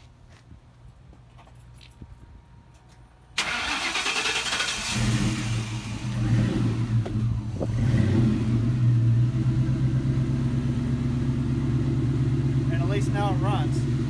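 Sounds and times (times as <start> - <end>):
car engine idling: 3.4 - 14.0.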